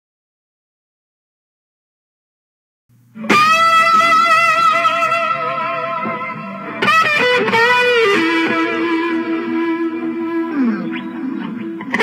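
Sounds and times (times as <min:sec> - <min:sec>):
electric lead guitar: 0:03.1 - 0:12.0.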